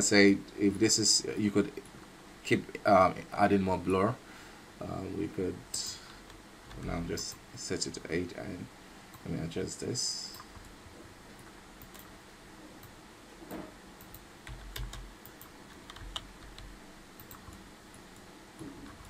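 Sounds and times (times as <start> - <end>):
keyboard and mouse clicks: 12.8 - 19.0.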